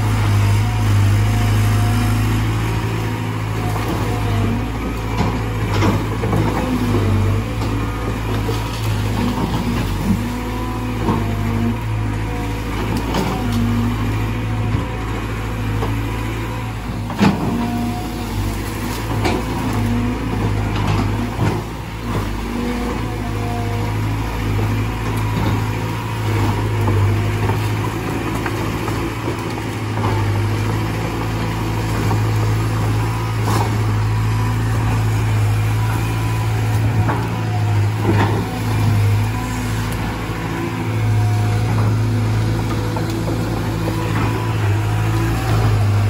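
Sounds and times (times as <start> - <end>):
excavator diesel engine running: 0.0 - 46.0.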